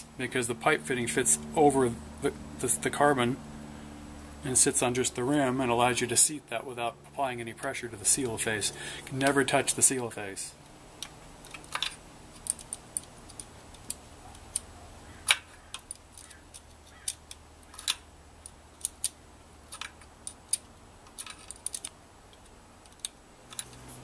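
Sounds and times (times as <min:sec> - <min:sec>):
clicks of small motor parts handled: 0:11.0 - 0:24.0.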